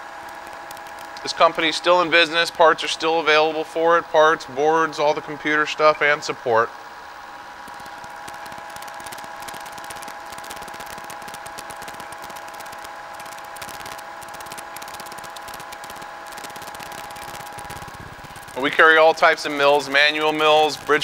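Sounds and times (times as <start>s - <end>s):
milling machine spindle whine: 0.0s - 21.0s
end mill cutting rattle: 7.4s - 21.0s.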